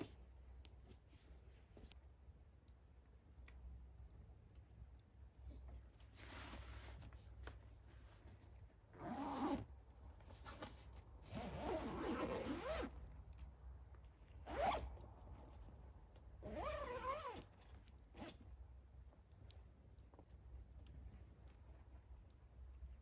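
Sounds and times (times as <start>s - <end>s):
zip being pulled: 9.0s - 9.6s, 11.3s - 12.9s, 14.5s - 14.9s, 16.4s - 17.4s.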